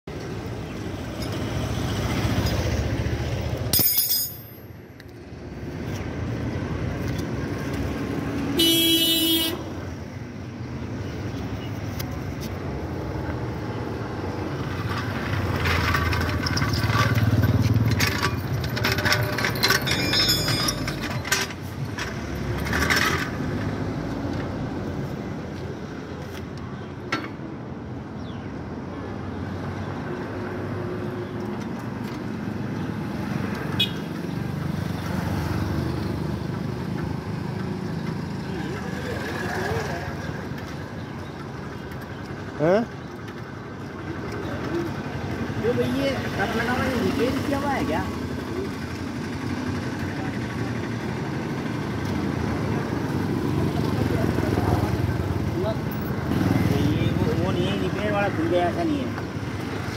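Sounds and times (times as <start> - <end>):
road traffic passing: 0.0 - 59.9
vehicle horn honking: 8.6 - 9.7.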